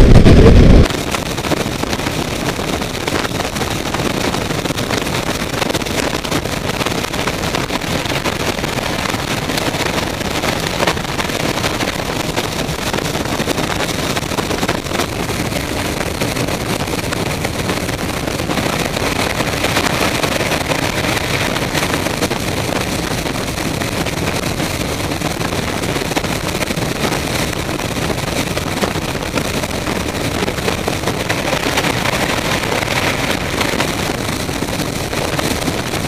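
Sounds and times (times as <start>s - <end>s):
jet engines running: 0.0s - 36.0s
rush of air: 0.0s - 36.0s.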